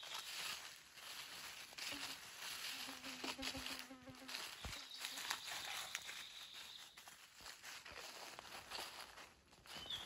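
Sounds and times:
flying insect buzzing: 1.7 - 5.2.

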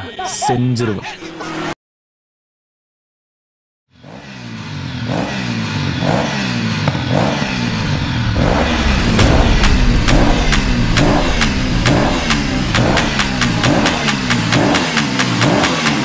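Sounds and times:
motor scooter engine accelerating: 4.4 - 7.9.

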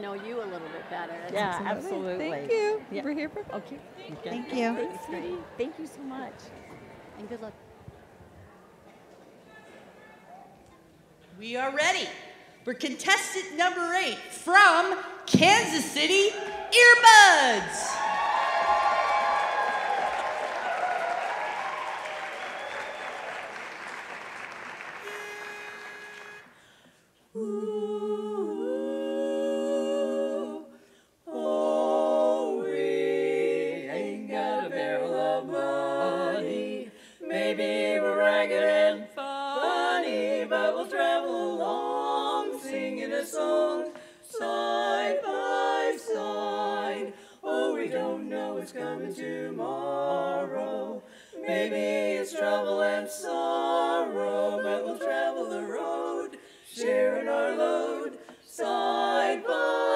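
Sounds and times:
women singing in close harmony: 27.3 - 59.9.

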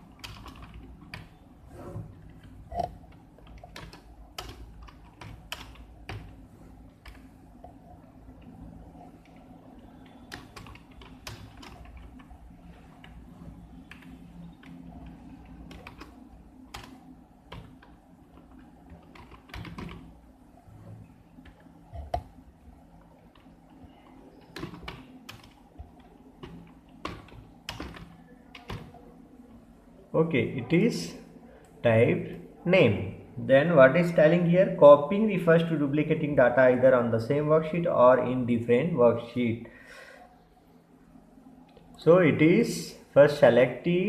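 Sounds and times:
low steady hum: 0.0 - 44.0
keyboard typing clicks: 0.2 - 1.4, 2.4 - 6.4, 9.2 - 12.3, 13.8 - 20.1, 23.3 - 29.0.

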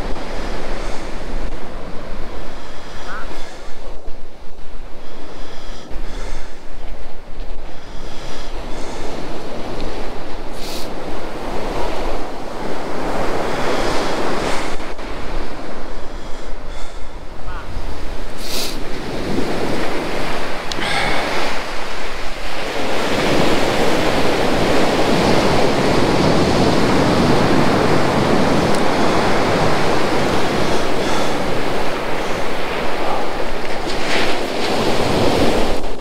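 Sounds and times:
surf breaking on beach: 0.0 - 36.0
wind on microphone: 0.0 - 36.0.

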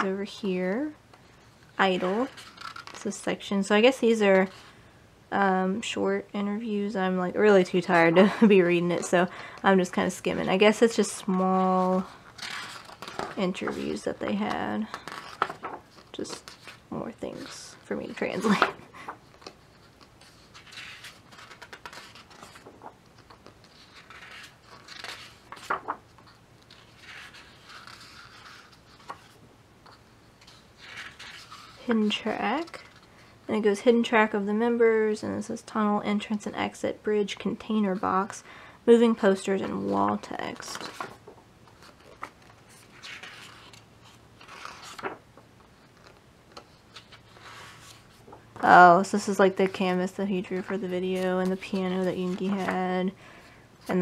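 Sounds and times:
book pages turning: 2.0 - 3.1, 10.5 - 33.1, 39.5 - 49.8, 50.4 - 52.9.

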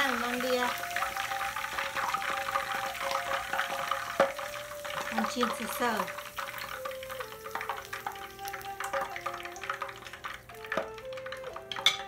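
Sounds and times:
leaves sizzling in hot oil: 0.0 - 12.0
slow soft melody: 0.0 - 12.0
chopsticks clicking against pan: 1.0 - 12.0.

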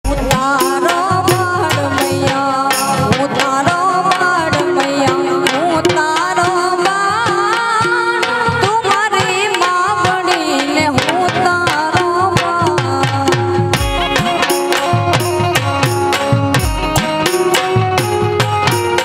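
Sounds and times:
steady tabla rhythm: 0.0 - 19.0
woman singing folk song: 0.1 - 13.8.

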